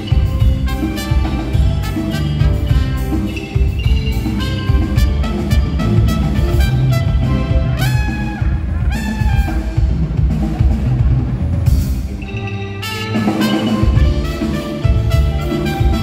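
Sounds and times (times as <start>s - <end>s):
bass drum and snare: 0.0s - 12.2s, 13.1s - 16.0s
live band playing: 0.0s - 16.0s
sliding melody line: 12.2s - 16.0s.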